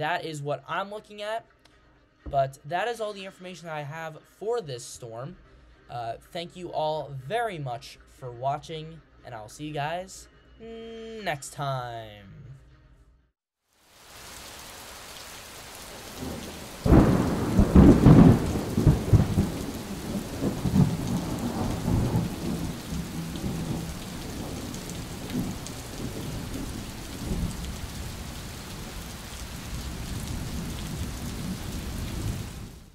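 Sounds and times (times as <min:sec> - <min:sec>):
steady rain: 0:13.7 - 0:32.9
thunderclap rumbling: 0:15.9 - 0:32.9.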